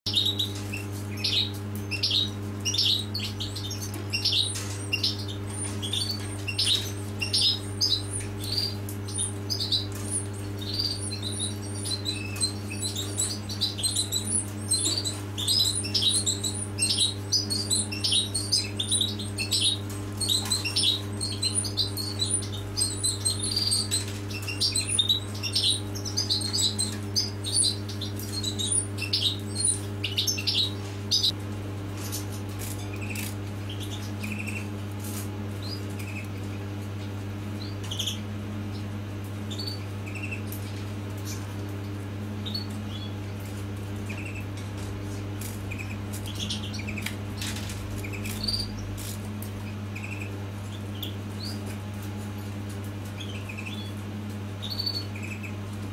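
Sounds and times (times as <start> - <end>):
nestlings cheeping: 0.1 - 31.4, 32.0 - 34.8, 44.0 - 44.6
low electrical hum: 0.1 - 55.9.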